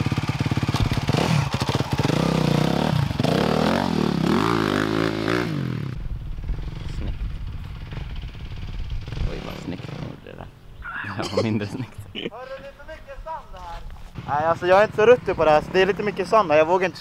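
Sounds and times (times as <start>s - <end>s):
dirt bike engine revving: 0.0s - 10.5s, 14.1s - 17.0s.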